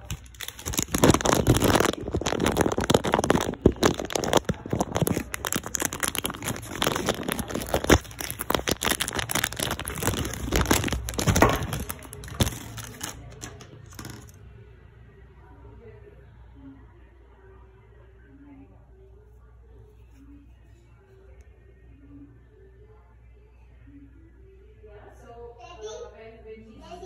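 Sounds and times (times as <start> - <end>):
phone handling crinkling: 0.0 - 14.3.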